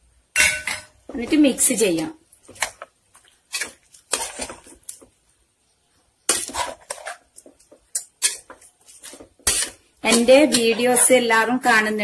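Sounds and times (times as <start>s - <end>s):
spoon scraping a metal pot: 3.5s - 4.8s, 6.3s - 11.0s.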